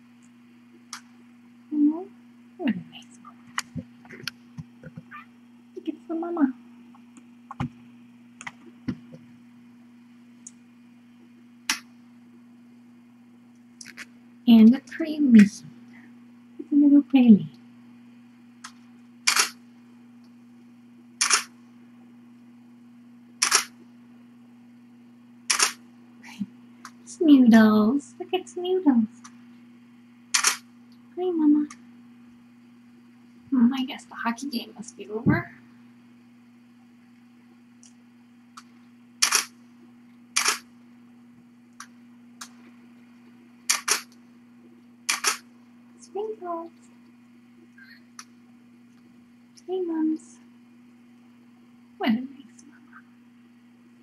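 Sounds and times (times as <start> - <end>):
low electrical hum: 0.0 - 54.0
camera shutter clicking: 19.3 - 19.6, 21.2 - 21.5, 23.4 - 23.7, 25.5 - 25.8, 30.4 - 30.6, 39.2 - 39.5, 40.4 - 40.7, 43.7 - 44.1, 45.1 - 45.4.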